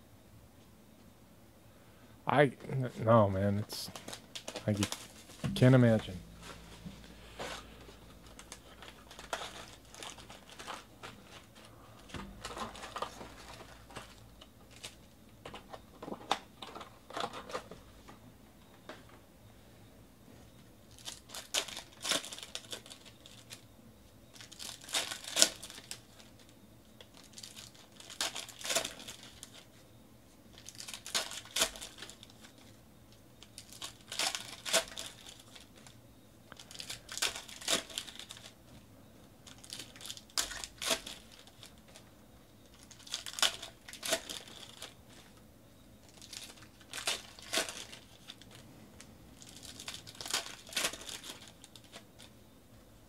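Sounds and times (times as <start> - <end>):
plastic wrappers tearing and crinkling: 3.8 - 15.1, 20.9 - 23.6, 24.3 - 29.8, 30.5 - 32.8, 33.4 - 38.6, 39.4 - 42.1, 42.7 - 45.2, 46.0 - 48.6, 49.4 - 52.3.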